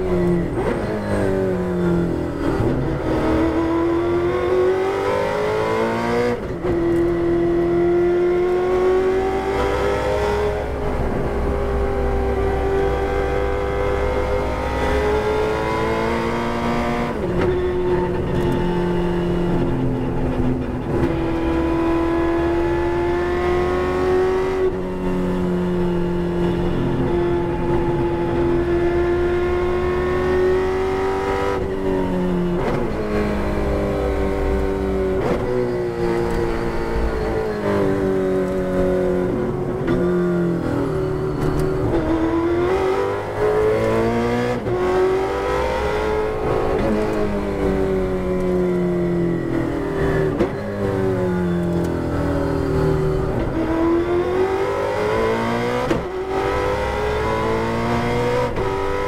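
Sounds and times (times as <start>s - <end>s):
race car engine at high revs: 0.0s - 59.0s.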